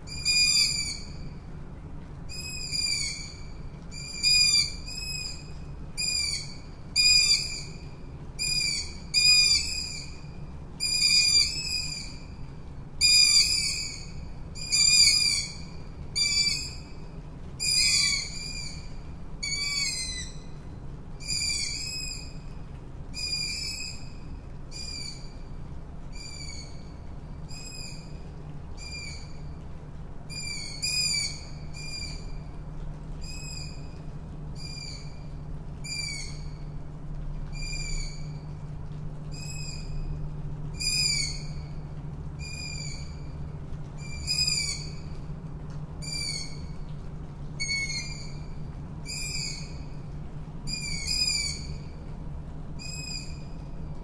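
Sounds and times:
low background hum: 0.0s - 54.0s
owl calling: 0.1s - 1.2s, 4.0s - 5.4s, 19.4s - 20.5s, 40.8s - 41.7s, 44.0s - 45.0s, 50.7s - 52.0s.

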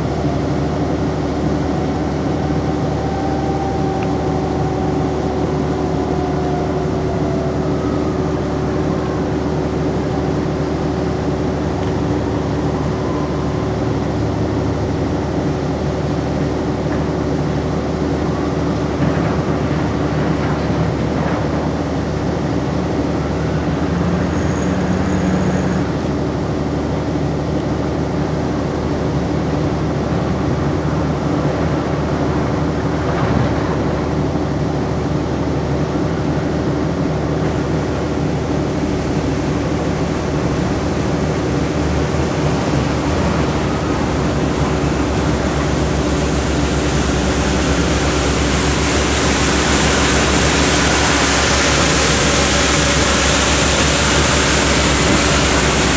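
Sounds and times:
wheel loader diesel engine droning: 0.0s - 55.9s.

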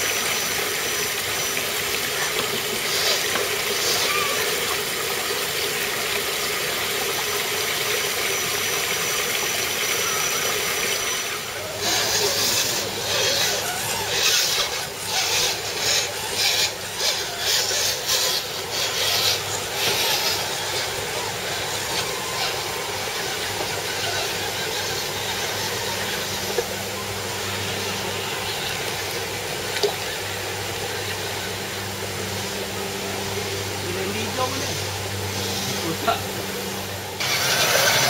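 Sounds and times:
small electric motors whirring: 0.0s - 38.0s
water splashing: 27.6s - 31.7s.

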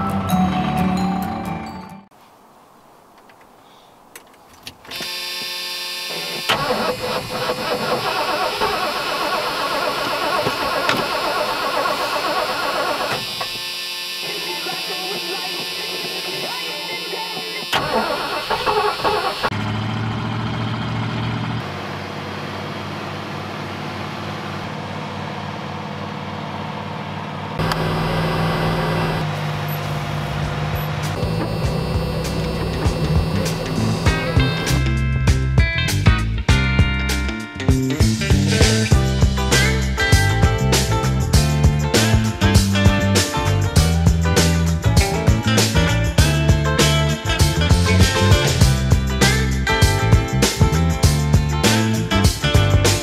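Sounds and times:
starter cranking: 4.9s - 16.5s, 17.4s - 19.5s
truck engine running: 6.0s - 36.6s, 37.9s - 53.0s.

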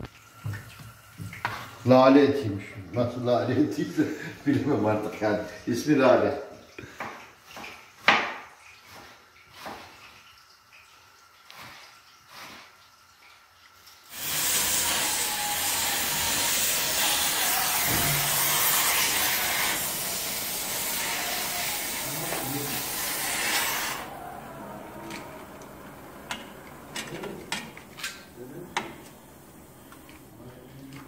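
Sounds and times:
torch hissing: 14.1s - 30.9s.

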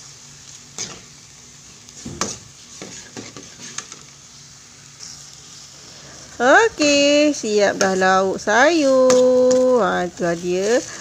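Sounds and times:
soft sizzle: 0.0s - 11.0s
metal ladle scraping wok: 2.1s - 4.0s.

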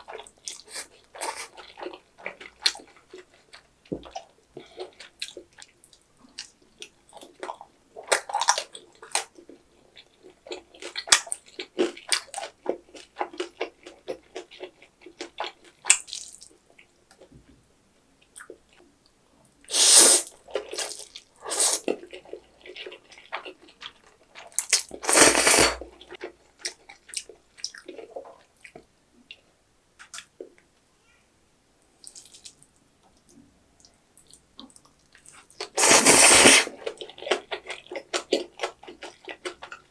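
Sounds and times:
loud noodle slurps: 19.7s - 21.9s, 25.0s - 25.8s, 35.8s - 36.8s.

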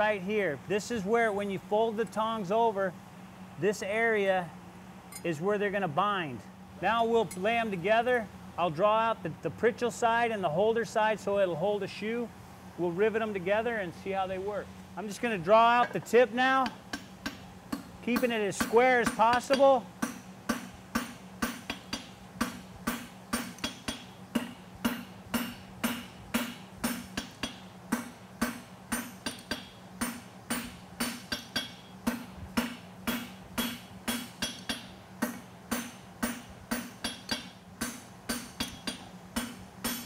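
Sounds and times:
steady low hum: 0.0s - 40.0s
hammer striking steel on anvil: 15.8s - 40.0s.

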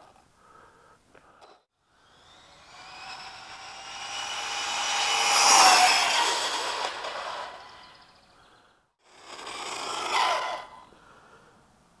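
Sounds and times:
electric motor whine of passing car: 2.0s - 8.2s, 9.1s - 10.8s.

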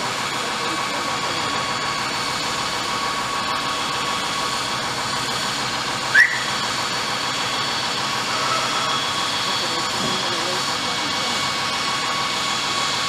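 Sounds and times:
heavy machinery humming: 0.0s - 13.0s
rising squeak: 6.1s - 6.6s, 8.2s - 9.4s.

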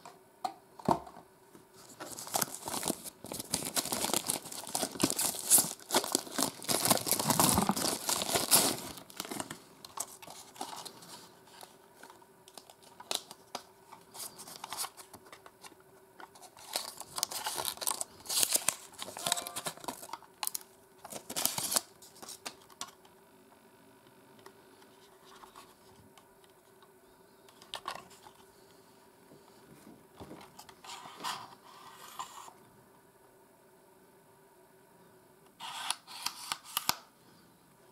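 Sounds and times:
paper and plastic rustling: 1.8s - 22.9s
plastic wrap crinkling and tearing: 1.9s - 15.1s, 16.4s - 22.6s.

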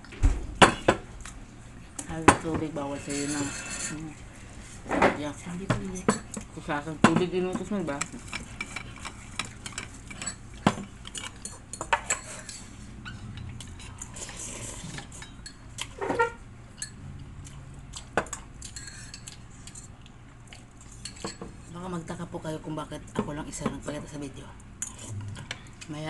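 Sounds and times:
cutlery clinking on a bowl: 2.4s - 4.0s, 7.1s - 12.7s, 18.2s - 19.9s, 20.9s - 21.6s
slurping noodles: 13.8s - 15.1s.

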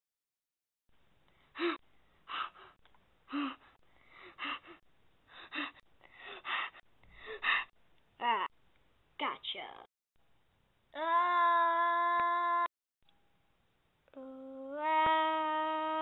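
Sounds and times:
person gasping: 1.4s - 7.7s.

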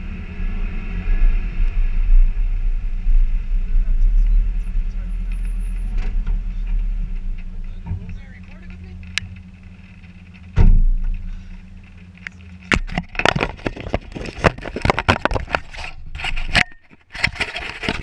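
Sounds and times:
vehicle engine idling: 0.0s - 15.0s
heavy thump: 5.9s - 9.5s, 10.4s - 11.9s.

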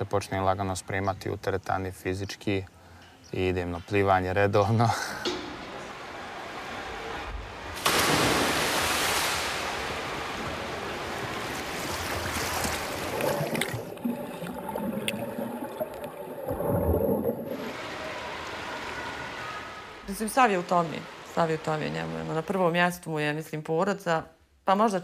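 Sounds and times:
loud splash into pool: 7.8s - 19.8s
swimming strokes splashing: 11.0s - 17.8s
underwater bubbling: 11.6s - 17.9s.

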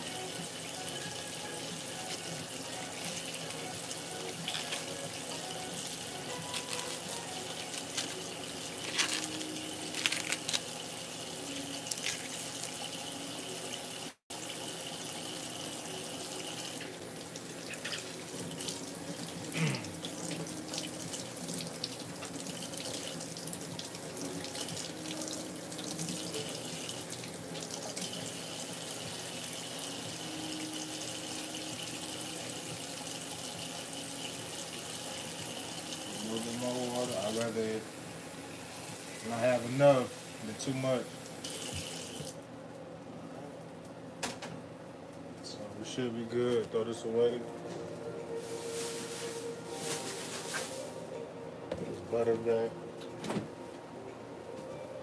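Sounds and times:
running water: 0.0s - 42.4s.

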